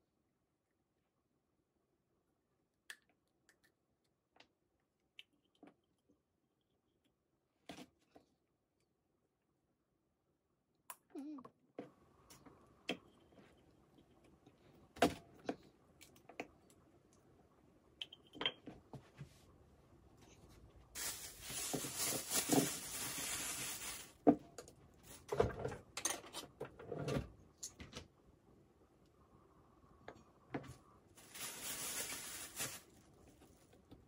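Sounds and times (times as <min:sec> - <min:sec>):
plastic bag crinkling: 0:20.9 - 0:24.2, 0:31.2 - 0:33.6.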